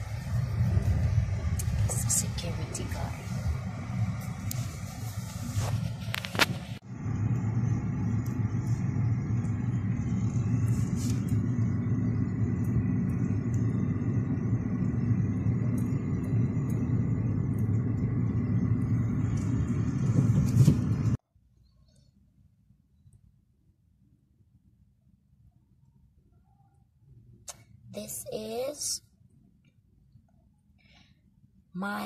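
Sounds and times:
car engine and road noise: 0.0s - 21.2s.

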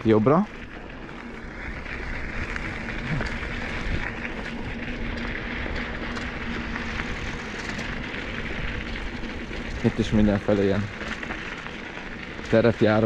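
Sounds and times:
bike tyres rolling on gravel: 0.0s - 13.0s
faint steady hum: 0.0s - 13.0s
wind rumble on microphone: 0.0s - 13.0s.

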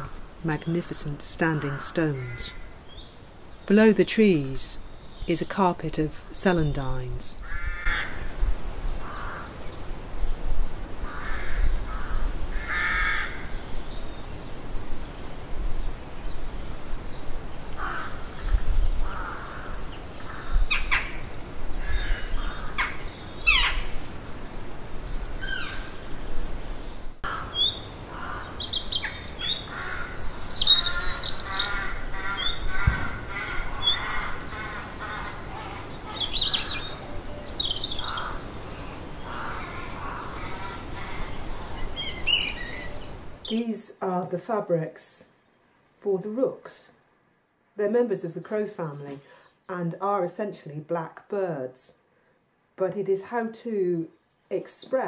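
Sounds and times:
rooks cawing: 7.4s - 8.3s, 9.0s - 9.6s, 11.0s - 13.6s, 17.8s - 18.4s, 19.0s - 21.2s, 21.8s - 24.0s, 27.2s - 37.0s, 37.7s - 42.3s
high thin chirping calls: 28.6s - 32.7s, 35.5s - 39.0s, 40.0s - 43.6s.

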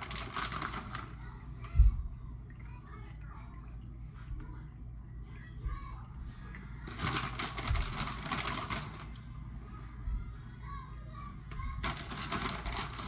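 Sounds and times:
plastic bag crinkling: 0.0s - 1.2s, 6.9s - 9.2s, 11.8s - 13.0s.

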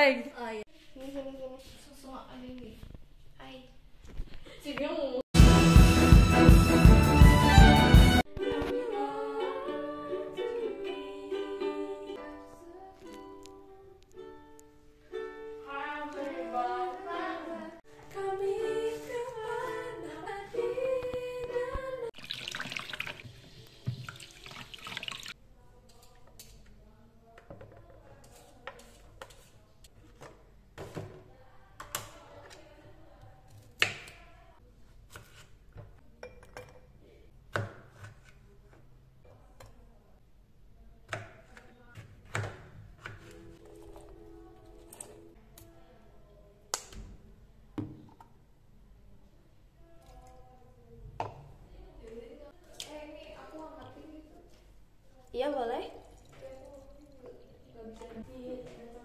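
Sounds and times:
ukulele strumming: 5.4s - 16.2s
voices singing: 7.8s - 14.0s, 15.6s - 22.2s.

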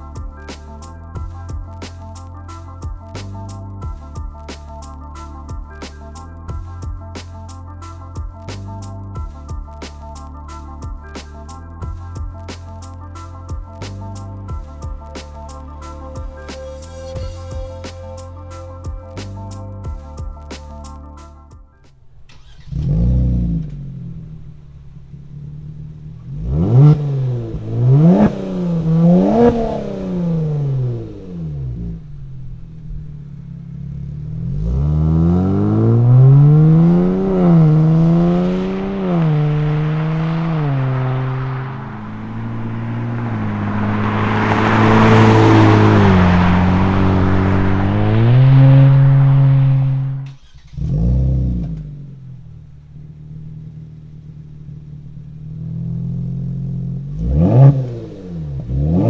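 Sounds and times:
car accelerating: 21.9s - 59.0s
car exhaust revving: 22.0s - 59.0s.

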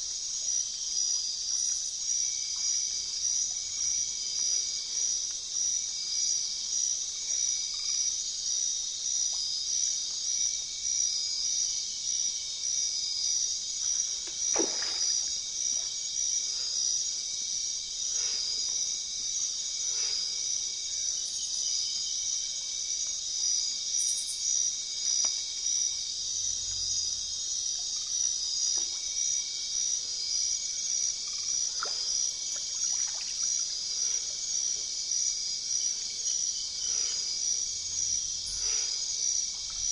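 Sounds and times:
insect chorus pulsing: 10.5s - 39.9s.

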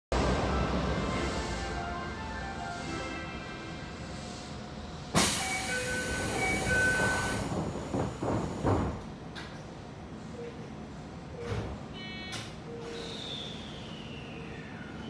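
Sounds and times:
short high beeps: 12.0s - 12.4s.

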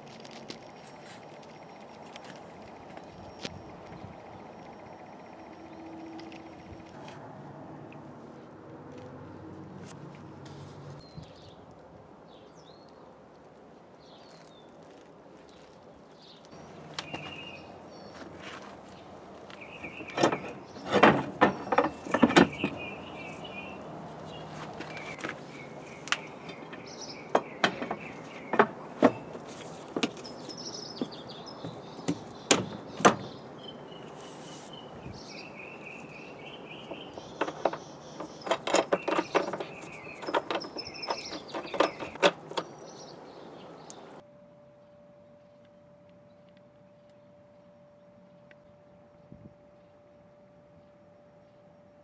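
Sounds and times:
birds chirping: 0.3s - 7.0s, 16.1s - 44.2s.

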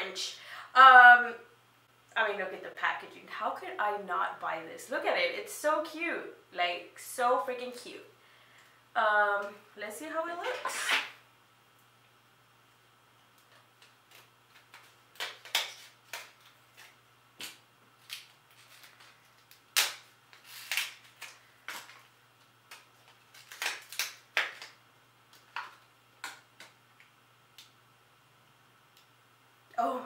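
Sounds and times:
plastic cracking: 13.4s - 27.7s.

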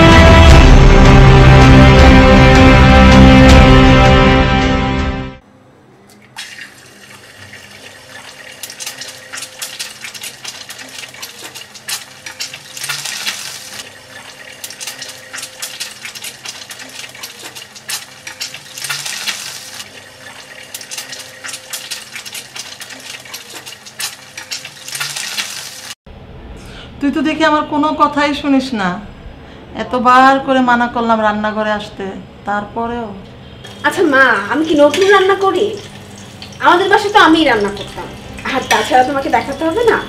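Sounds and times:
egg sizzling in frying pan: 6.4s - 26.0s, 34.6s - 40.0s.

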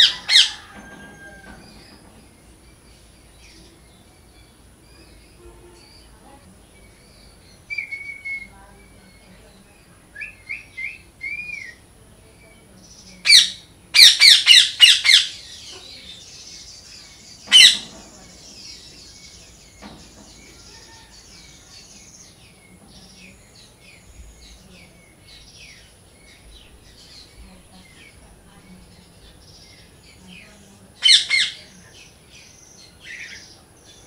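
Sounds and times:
parrot chirping and screeching: 0.0s - 1.4s, 13.3s - 15.7s, 17.5s - 18.0s, 31.0s - 31.6s.

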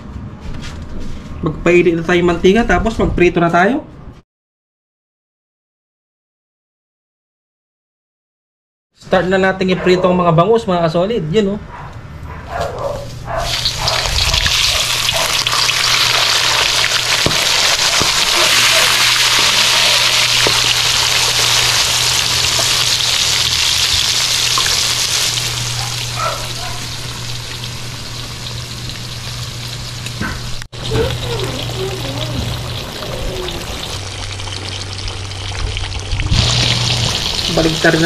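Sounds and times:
fish frying in hot oil: 13.4s - 30.2s, 30.8s - 38.0s.

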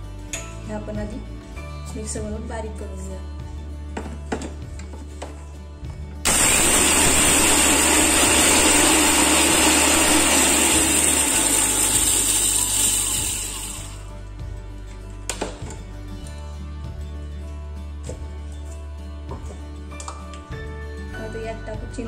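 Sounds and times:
electric mixer grinder running: 6.3s - 14.1s.

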